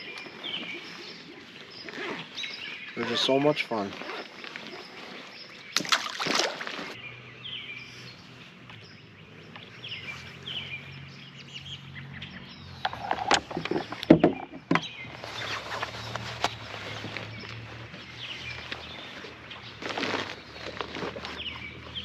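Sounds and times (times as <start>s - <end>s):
birds chirping: 0.0s - 22.0s
knocks and bumps on boat: 13.2s - 14.9s.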